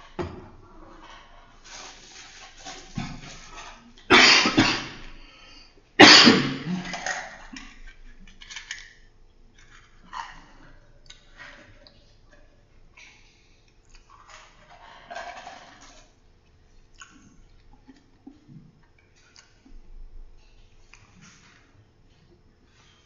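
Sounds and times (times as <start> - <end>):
faint small noises: 0.0 - 23.0
person coughing: 4.1 - 5.1, 6.0 - 7.2.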